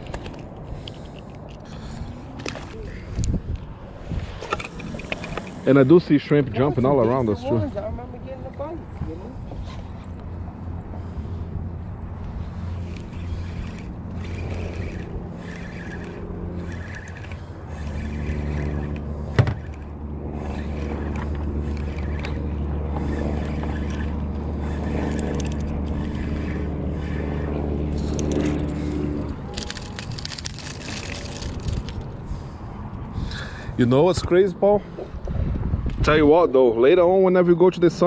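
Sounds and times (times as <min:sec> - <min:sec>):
motor hum: 0:00.0 - 0:33.8
fishing reel whirring: 0:12.1 - 0:32.6.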